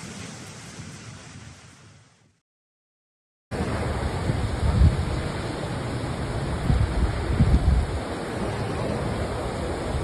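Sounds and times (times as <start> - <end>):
strong wind buffeting microphone: 3.5 - 10.0.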